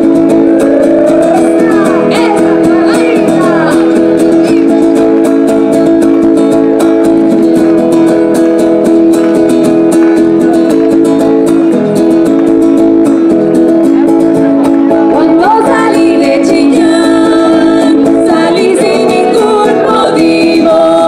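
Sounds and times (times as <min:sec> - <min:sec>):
accordion chords: 0:00.0 - 0:06.4
strummed acoustic guitar: 0:00.0 - 0:21.0.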